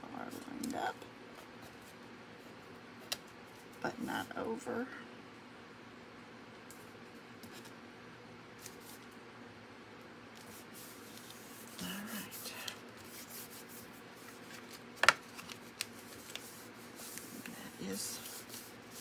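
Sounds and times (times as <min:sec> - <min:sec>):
paper rubbing and rustling: 0:10.4 - 0:19.0.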